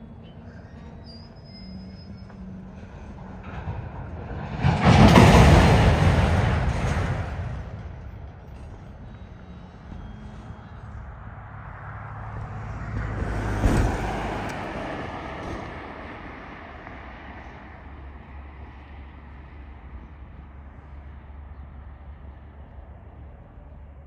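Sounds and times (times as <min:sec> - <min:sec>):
freight train rumbling: 0:00.0 - 0:24.0
road vehicle passing: 0:00.0 - 0:24.0.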